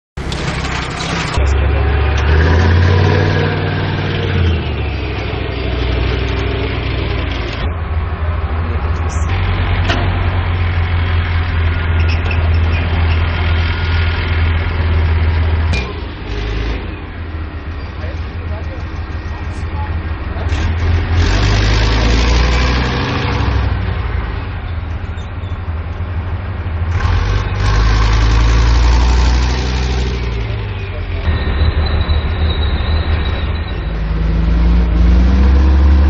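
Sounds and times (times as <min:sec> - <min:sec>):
diesel engine deep rumble: 0:00.2 - 0:36.0.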